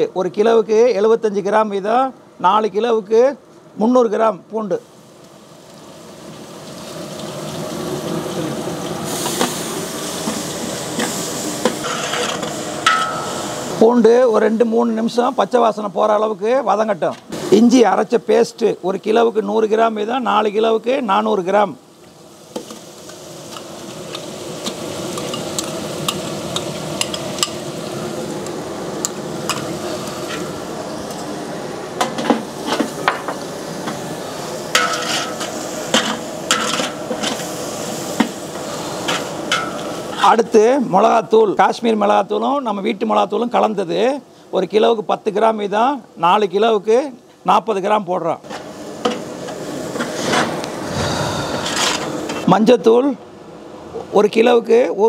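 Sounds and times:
garlic sizzling in hot oil: 0:04.6 - 0:53.0
steel spoon scraping a pot: 0:11.8 - 0:13.3.

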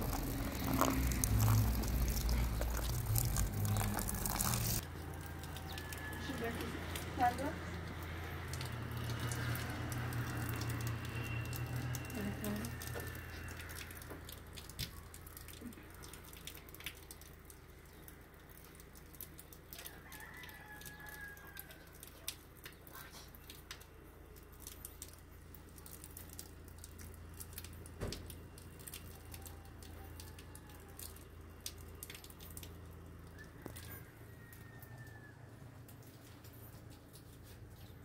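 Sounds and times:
rooster crowing: 0:00.1 - 0:07.0, 0:19.7 - 0:22.2, 0:29.2 - 0:31.2, 0:33.3 - 0:35.9.

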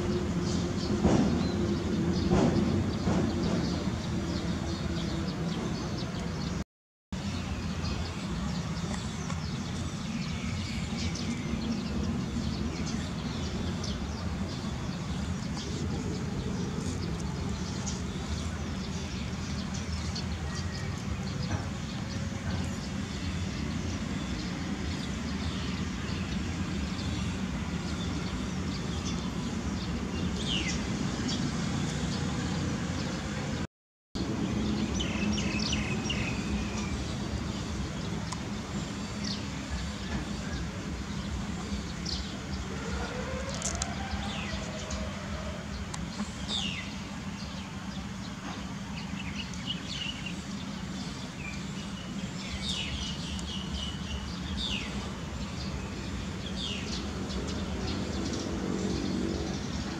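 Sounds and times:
small birds chirping: 0:34.4 - 0:59.9.

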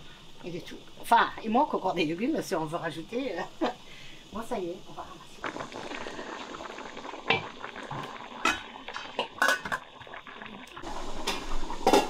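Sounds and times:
metal pots clinking and knocking: 0:07.3 - 0:10.1, 0:11.2 - 0:12.0.

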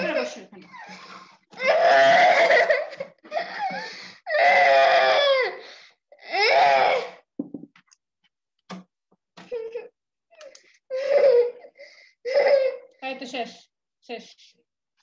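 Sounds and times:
boy crying and wailing: 0:00.7 - 0:07.2, 0:09.5 - 0:10.0, 0:10.9 - 0:12.9
boy sobbing: 0:00.7 - 0:07.2, 0:09.5 - 0:10.0, 0:10.9 - 0:12.9.

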